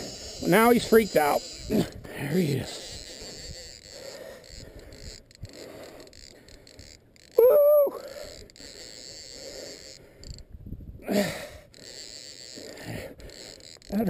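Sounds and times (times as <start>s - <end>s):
man's loud pitched cry: 7.4s - 8.0s.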